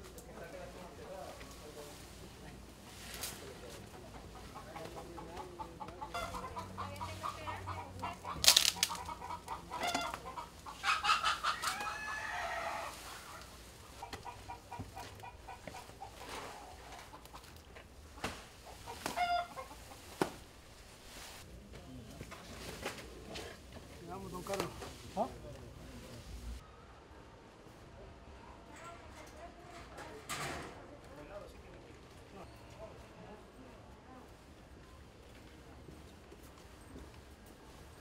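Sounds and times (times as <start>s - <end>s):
chickens clucking: 0.7s - 21.4s
rooster crowing: 10.8s - 13.3s.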